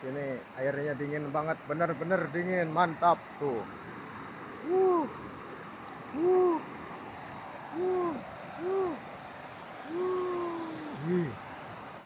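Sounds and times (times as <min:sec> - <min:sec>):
stream rushing over rocks: 0:00.0 - 0:12.0
short hooting calls: 0:04.6 - 0:05.2, 0:06.1 - 0:06.7, 0:07.7 - 0:09.1, 0:09.7 - 0:11.4.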